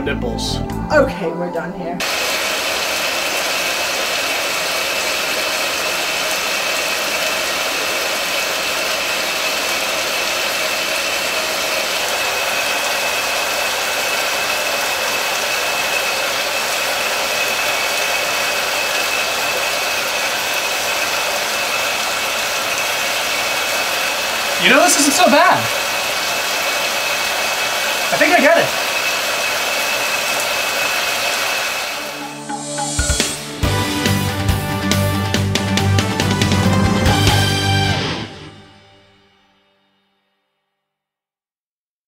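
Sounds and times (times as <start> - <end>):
shower water spray hissing: 2.0 - 32.3.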